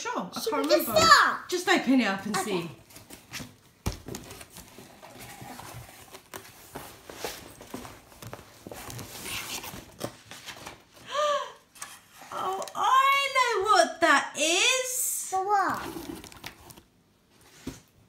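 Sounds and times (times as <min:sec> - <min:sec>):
cardboard packaging rustling: 0:02.8 - 0:11.0, 0:15.8 - 0:17.9.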